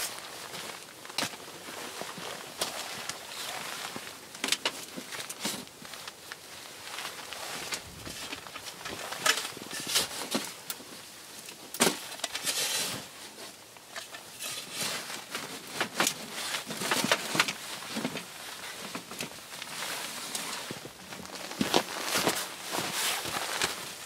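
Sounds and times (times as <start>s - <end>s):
shovel crunching snow: 21.4s - 24.0s.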